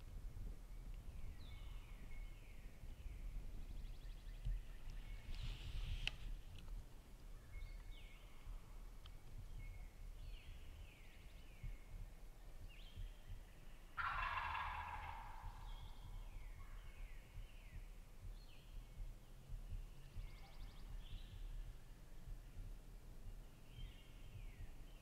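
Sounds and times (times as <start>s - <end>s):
small birds chirping: 7.3s - 25.0s
turkey gobbling: 14.0s - 15.6s.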